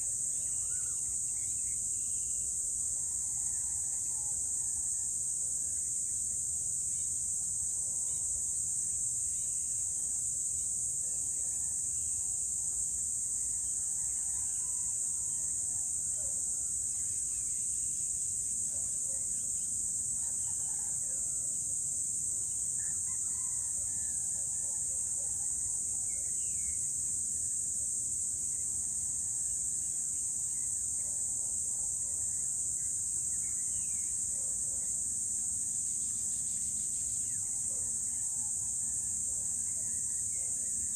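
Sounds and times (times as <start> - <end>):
high-pitched insect chorus: 0.0 - 40.9
distant rooster crows: 3.0 - 5.4, 13.5 - 16.1, 20.1 - 21.8, 22.7 - 26.0.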